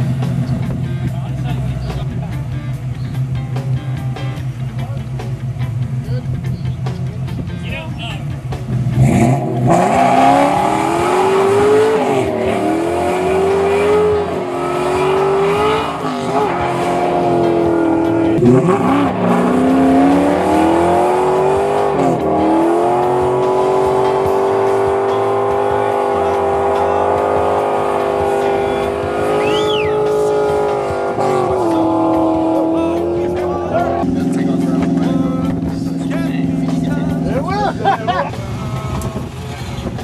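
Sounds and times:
car engine revving hard: 0:08.6 - 0:38.2
tyres squealing: 0:28.8 - 0:32.7.

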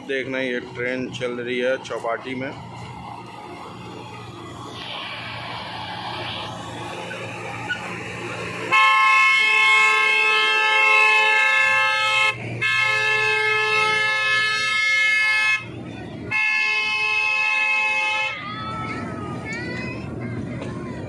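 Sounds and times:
low hum: 0:00.6 - 0:10.2
mini train horn blasts: 0:08.5 - 0:15.7, 0:16.3 - 0:18.4.

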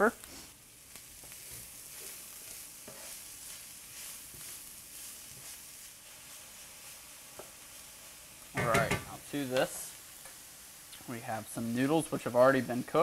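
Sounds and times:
vegetables sizzling in hot oil: 0:00.0 - 0:13.0
wooden spatula scraping a pan: 0:00.2 - 0:07.8.

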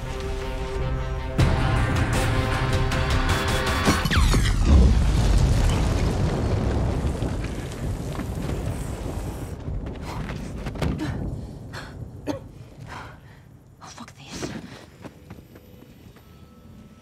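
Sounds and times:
low rumble of explosion: 0:04.2 - 0:13.6.

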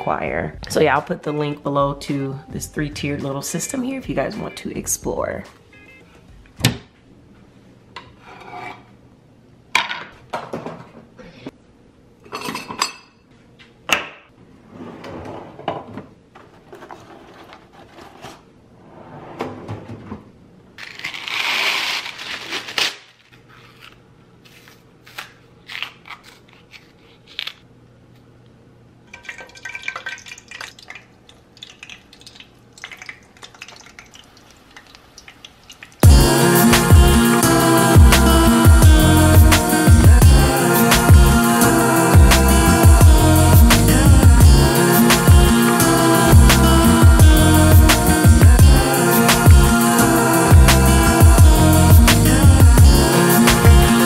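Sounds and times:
dishes and pans clattering: 0:12.3 - 0:13.2.

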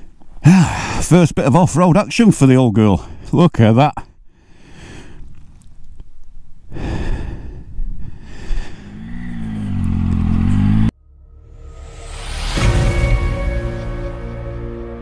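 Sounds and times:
motorcycle engine revving: 0:08.6 - 0:11.0
rushing noise: 0:11.1 - 0:14.4.

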